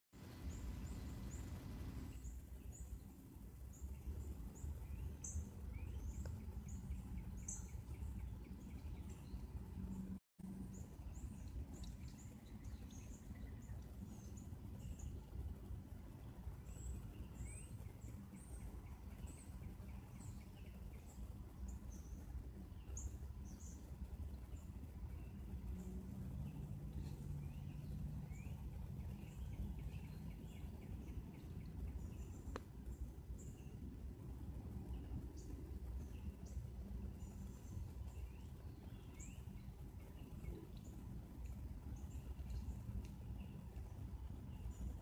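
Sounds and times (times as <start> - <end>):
steady low rumble: 0.2 - 45.0.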